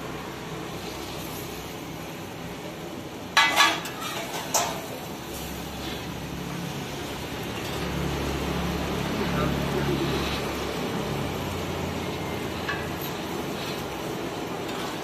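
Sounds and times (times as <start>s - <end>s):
metal spatula scraping on griddle: 3.4s - 15.0s.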